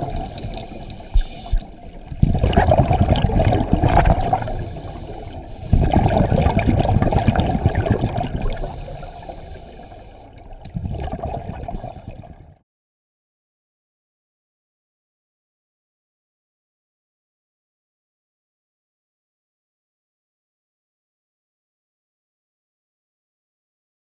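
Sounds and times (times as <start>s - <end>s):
underwater exhaled air bubbling: 0.0s - 12.6s.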